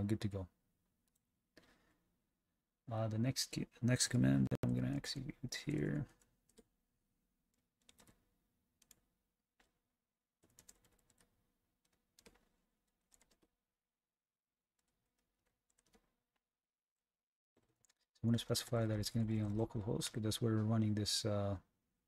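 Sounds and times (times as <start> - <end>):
keyboard typing: 5.7 - 6.7, 7.5 - 9.8, 10.4 - 13.5, 14.8 - 16.2.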